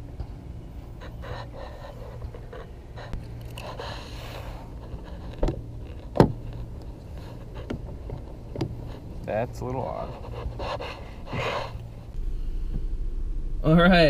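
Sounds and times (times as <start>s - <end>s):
steady low hum: 0.0s - 14.0s
breathing close to microphone: 10.1s - 13.0s.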